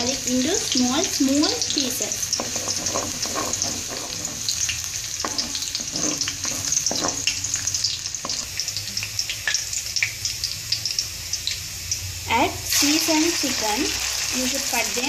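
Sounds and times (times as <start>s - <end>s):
spatula stirring in wok: 0.0s - 9.0s
garlic sizzling in hot oil: 0.0s - 15.0s.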